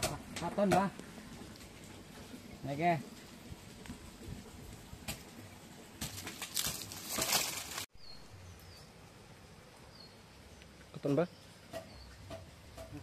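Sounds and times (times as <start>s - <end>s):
rustling and brushing: 1.0s - 7.9s
faint high bird chirps: 7.9s - 9.0s.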